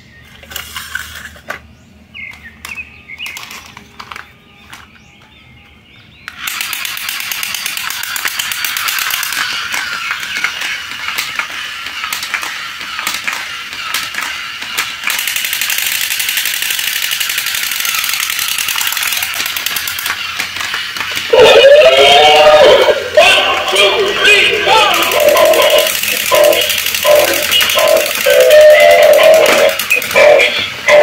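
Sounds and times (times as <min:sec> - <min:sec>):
toy machine-gun sound effects: 0:06.3 - 0:31.0.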